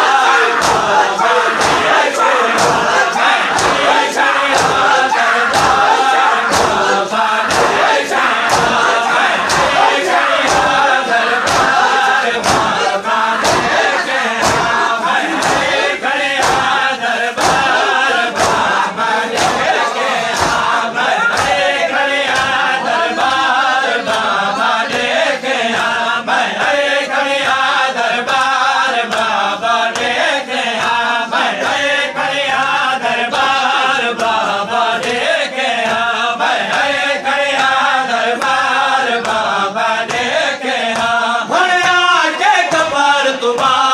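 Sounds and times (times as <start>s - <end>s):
chest-beating slaps: 0.0s - 23.5s, 39.2s - 41.2s
crowd of men singing along: 0.0s - 43.9s
men chanting lament: 0.0s - 43.9s.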